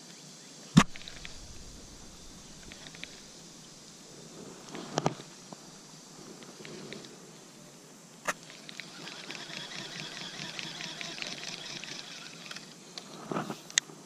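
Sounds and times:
fast fine reel ticking: 8.8s - 12.6s.

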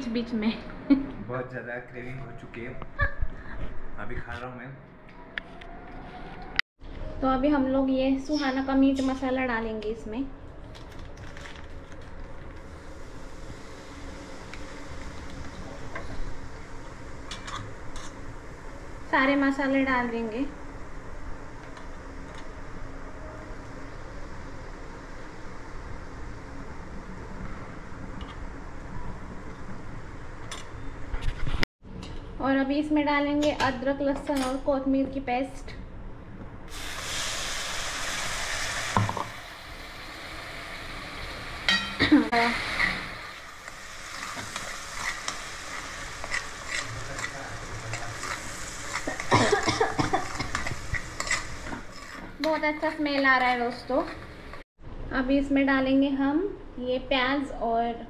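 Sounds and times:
paste frying in oil hiss: 11.3s - 22.8s, 36.7s - 54.6s
metal spoon scraping pan: 44.1s - 49.3s, 50.2s - 54.6s.

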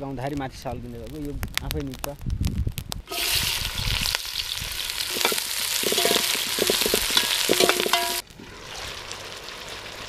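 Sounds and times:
meat sizzling in pot: 3.0s - 10.0s
metal ladle scraping pot: 3.1s - 3.5s, 5.1s - 8.2s.

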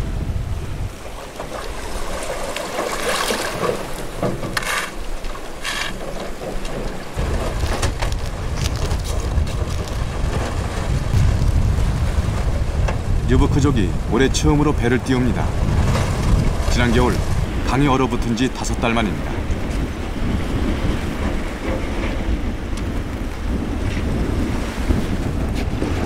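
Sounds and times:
river ice grinding and crackling: 1.2s - 13.5s.

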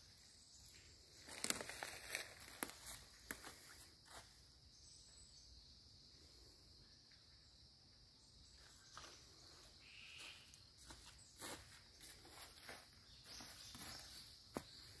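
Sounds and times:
footsteps on dry leaves: 1.1s - 4.3s, 10.1s - 15.0s.

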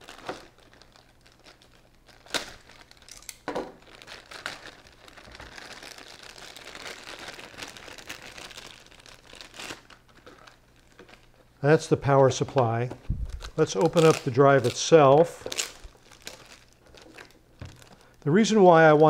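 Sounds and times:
plastic bag crinkling: 0.0s - 19.0s.

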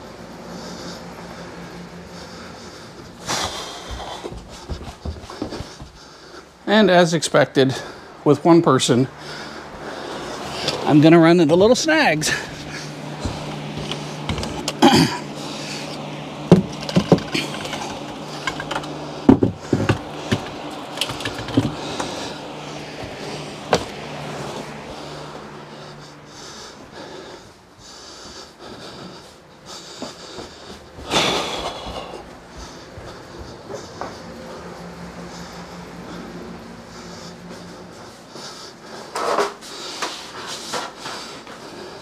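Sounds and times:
low hum: 0.0s - 40.0s
wire handling clicks and knocks: 13.2s - 14.9s, 16.4s - 22.2s.

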